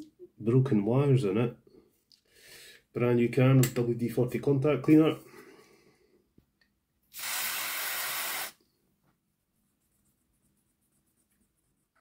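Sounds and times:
aerosol spray hiss: 0:07.1 - 0:08.6.

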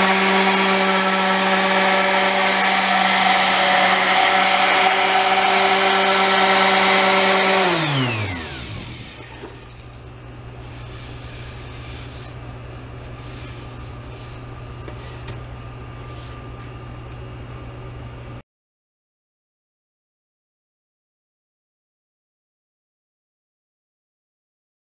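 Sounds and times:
orbital sander whining: 0:00.0 - 0:10.0.

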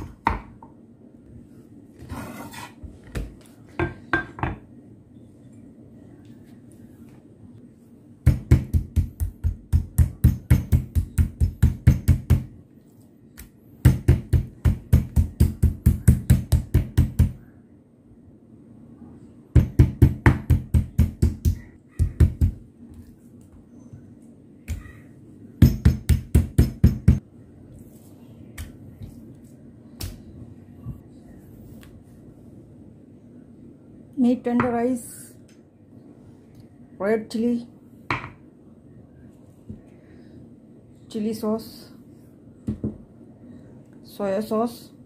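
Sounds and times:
meat mallet pounding steak: 0:08.2 - 0:12.5, 0:13.8 - 0:17.4, 0:19.6 - 0:22.6, 0:25.6 - 0:27.2.

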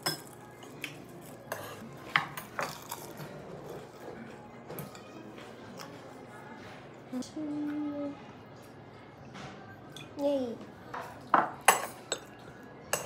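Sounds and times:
cutlery and dishes clinking: 0:00.0 - 0:06.1, 0:10.9 - 0:13.0.

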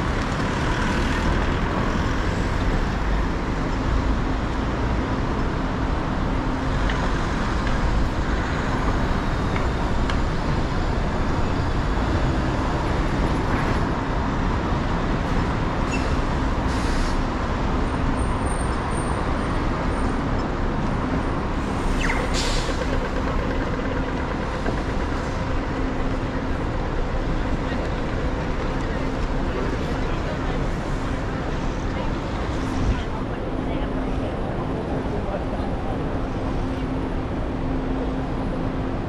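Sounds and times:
street traffic: 0:00.0 - 0:39.0
bus air brakes hissing: 0:16.0 - 0:17.3, 0:21.6 - 0:22.9.

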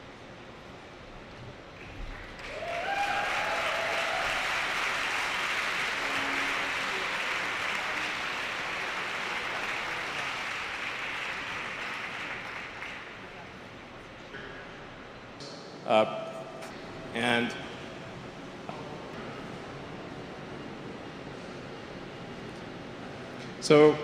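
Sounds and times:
crowd applauding and cheering: 0:01.8 - 0:13.9
people shouting: 0:02.6 - 0:04.8.

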